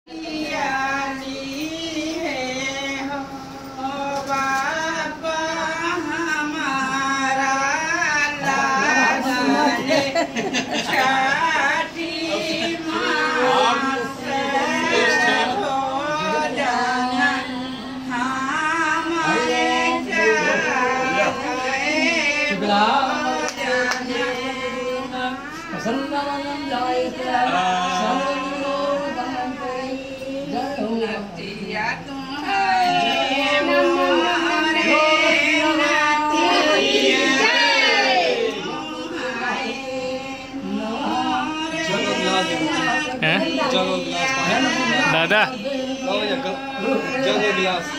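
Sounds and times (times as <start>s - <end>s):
person singing: 40.5s - 45.7s.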